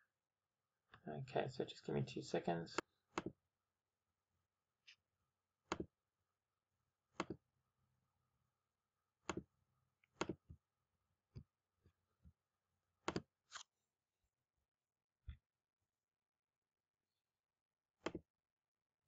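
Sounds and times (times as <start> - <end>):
computer mouse clicking: 7.2 - 7.4, 9.2 - 9.5, 10.1 - 10.5, 13.0 - 13.6.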